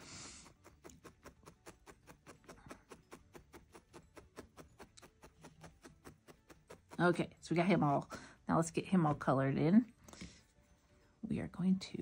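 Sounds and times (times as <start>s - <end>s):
felting needle ticking: 0.2s - 8.0s.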